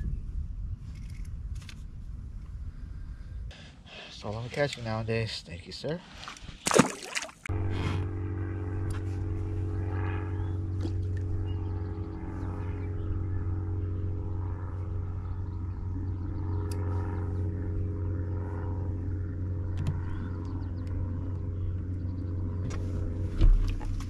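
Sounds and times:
low rumble: 0:07.4 - 0:24.0
electric trolling motor humming: 0:07.5 - 0:24.0.

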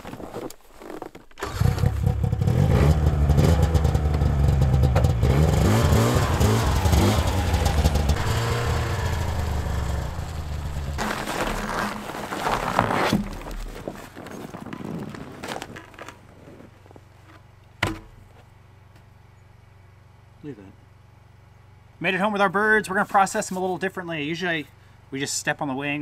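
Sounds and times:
snowmobile engine revving: 0:01.4 - 0:12.9.

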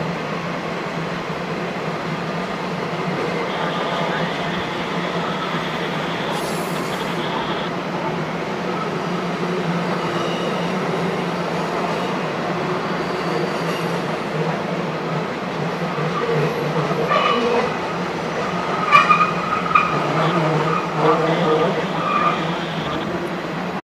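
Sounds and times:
train wheels rumbling on rail: 0:00.0 - 0:23.8
wheel squeals: 0:09.9 - 0:14.4, 0:18.5 - 0:23.3.

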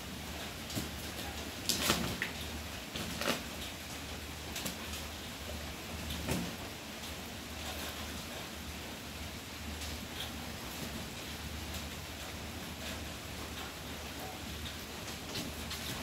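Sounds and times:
cats scuffling against umbrella: 0:00.6 - 0:03.8, 0:14.7 - 0:16.0.

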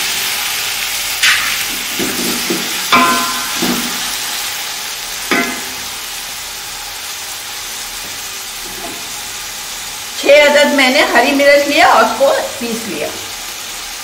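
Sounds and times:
tomatoes sizzling in oil: 0:00.0 - 0:14.0
spatula knocking against pot: 0:02.0 - 0:04.1, 0:05.3 - 0:05.8.

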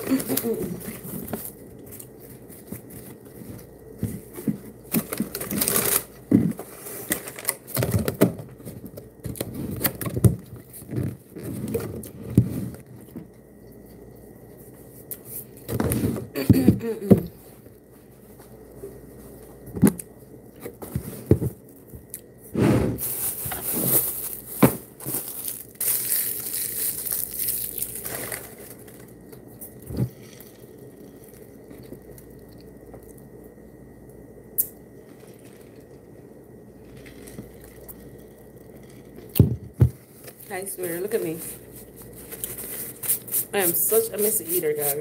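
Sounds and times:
packaging scrapes and rustles: 0:05.0 - 0:07.7, 0:22.7 - 0:29.1, 0:41.2 - 0:45.0.

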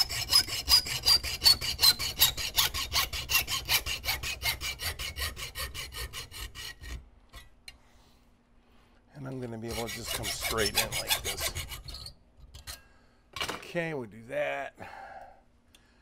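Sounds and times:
hacksaw cutting metal: 0:00.0 - 0:07.0, 0:09.3 - 0:12.1.

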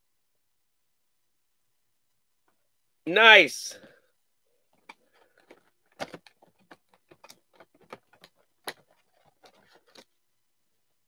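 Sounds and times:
trading cards clicking and rustling: 0:04.8 - 0:10.2.

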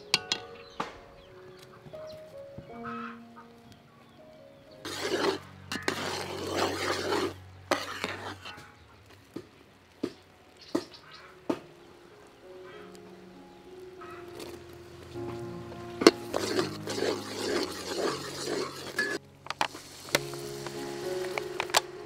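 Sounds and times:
soft background music: 0:00.0 - 0:07.4, 0:10.3 - 0:22.0
metal ladle scraping a pot: 0:04.9 - 0:08.7, 0:16.0 - 0:19.6.

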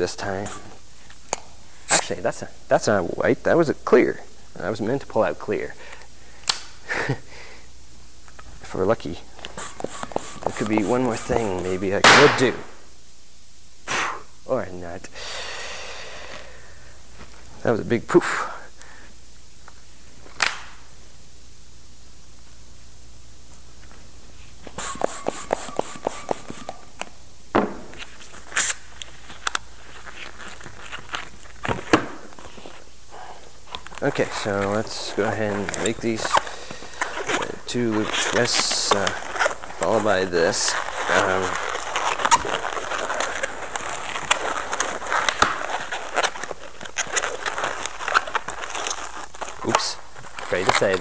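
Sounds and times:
latex balloon rubbing: 0:09.3 - 0:12.0, 0:24.3 - 0:27.0, 0:27.7 - 0:51.0.

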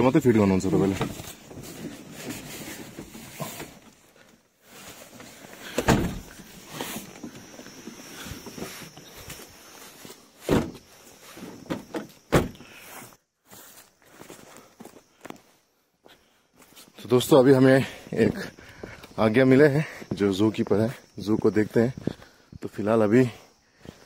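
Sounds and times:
footsteps: 0:13.0 - 0:16.9.

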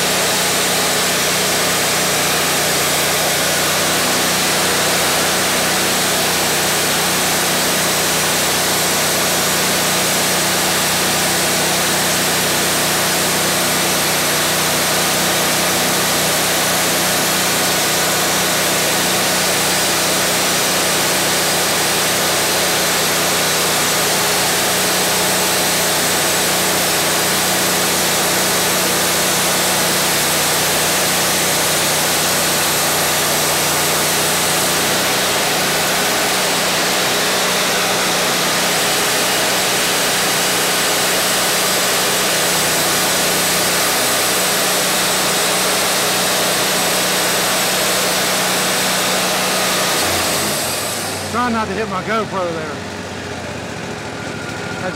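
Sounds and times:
band sawmill running: 0:00.0 - 0:54.9
steady hum: 0:49.8 - 0:54.9.

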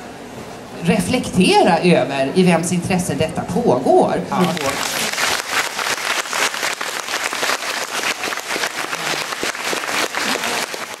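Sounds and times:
audience applauding: 0:04.4 - 0:11.0.

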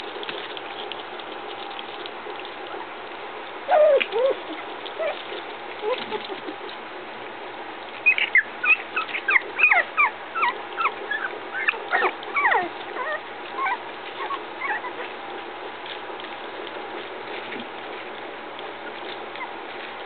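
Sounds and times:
puppies whimpering and squeaking: 0:03.7 - 0:06.8, 0:08.0 - 0:15.2, 0:18.8 - 0:19.8.

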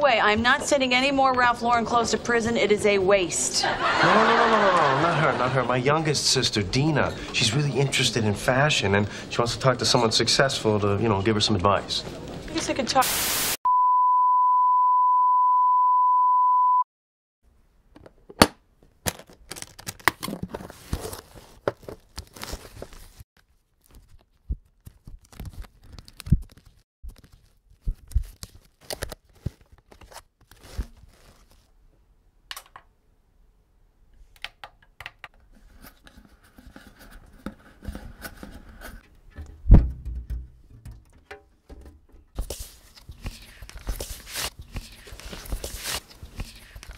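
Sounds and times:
tv static burst: 0:13.0 - 0:13.6
high-pitched test-tone beep: 0:13.7 - 0:16.8
record sleeves being flipped: 0:18.3 - 0:31.8, 0:41.7 - 0:46.9
heavy thump: 0:39.4 - 0:41.0.

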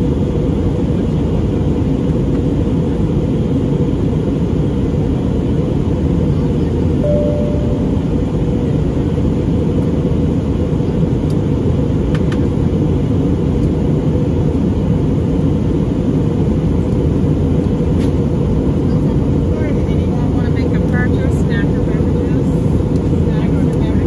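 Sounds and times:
airplane cabin engine rumble: 0:00.0 - 0:24.0
faint steady tone: 0:07.0 - 0:08.8.

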